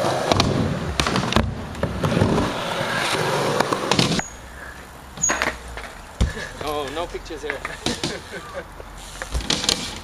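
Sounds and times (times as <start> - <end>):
skateboard wheels rolling on concrete: 0.0 - 10.0
skateboard clacking on ground: 5.2 - 8.2.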